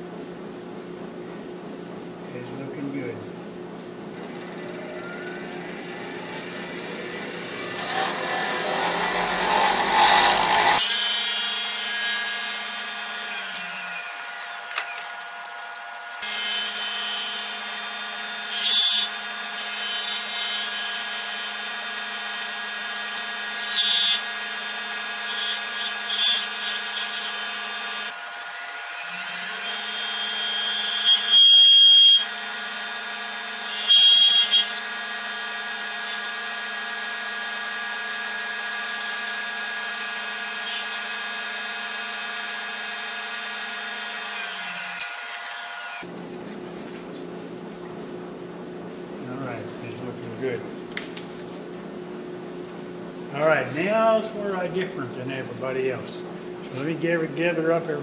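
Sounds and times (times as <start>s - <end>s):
wood lathe whining: 4.2s - 46.1s
tool cutting wood on lathe: 6.4s - 46.1s.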